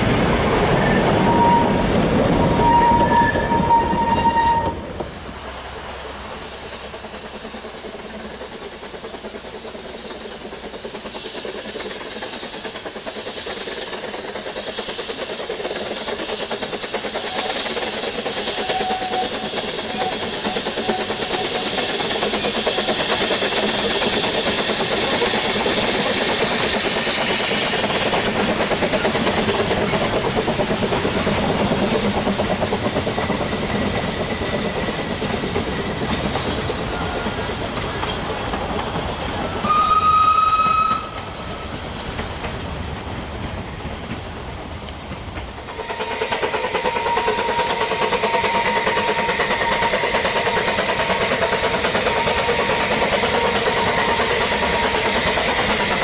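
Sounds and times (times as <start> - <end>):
steam locomotive exhaust: 0.0 - 56.0
steam whistle: 0.8 - 1.9, 2.5 - 4.8, 18.6 - 21.6, 39.6 - 41.4, 45.7 - 51.2, 51.9 - 55.1.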